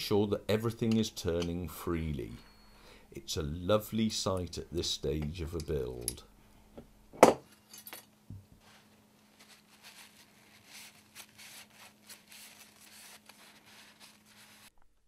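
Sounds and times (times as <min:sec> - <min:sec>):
faint steady hum: 0:00.0 - 0:15.0
cloth rag rubbing on metal: 0:08.6 - 0:14.7.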